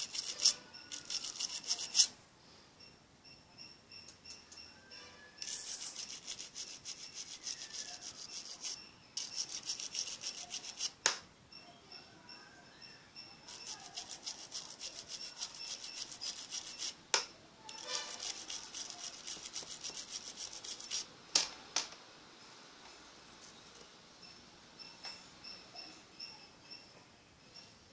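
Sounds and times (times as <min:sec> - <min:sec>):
swab scrubbing phone contacts: 0:00.0 - 0:02.1, 0:05.4 - 0:11.0, 0:13.5 - 0:17.0, 0:17.7 - 0:21.1.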